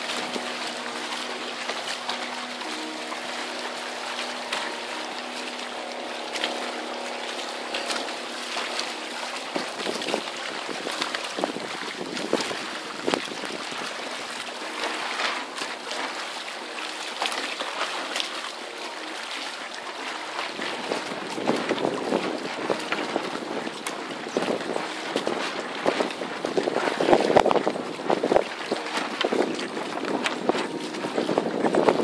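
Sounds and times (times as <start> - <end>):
water rushing along boat hull: 0.0 - 32.0
waves slapping hull: 0.0 - 32.0.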